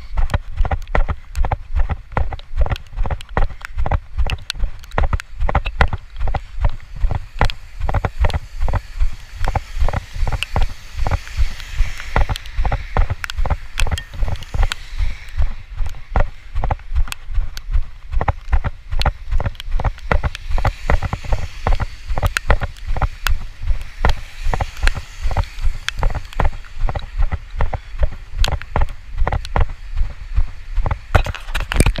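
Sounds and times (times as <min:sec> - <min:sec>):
sharp ticks: 0:00.0 - 0:32.0
walking footsteps: 0:00.0 - 0:32.0
wind rumble on microphone: 0:00.0 - 0:32.0
car tyres hissing on wet road: 0:06.0 - 0:18.0, 0:19.2 - 0:31.1.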